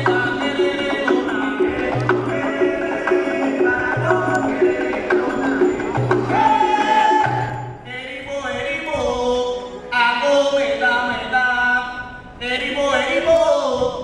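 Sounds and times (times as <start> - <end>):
bata drums: 0.0 - 7.9
voices singing a chant: 0.0 - 7.9.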